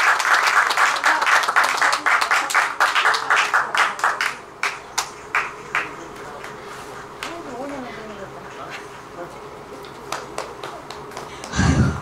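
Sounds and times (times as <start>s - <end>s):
audience applause: 0.0s - 6.1s.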